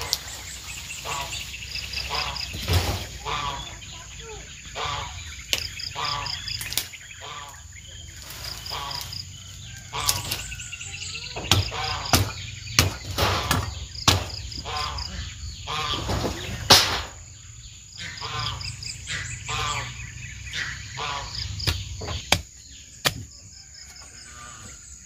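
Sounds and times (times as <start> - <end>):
high insect drone: 0.0 - 15.9, 17.0 - 25.0
cricket chirping: 0.0 - 25.0
digging tool striking ground: 11.4 - 14.5, 21.6 - 23.4.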